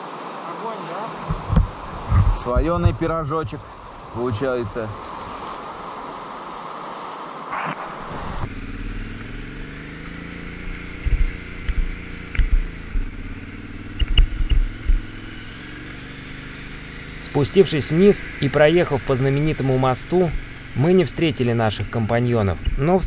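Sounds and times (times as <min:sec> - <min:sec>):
rushing river water: 0:00.0 - 0:08.3
low thumps: 0:01.3 - 0:03.8, 0:07.5 - 0:15.3
motorcycle engine running: 0:08.4 - 0:23.0.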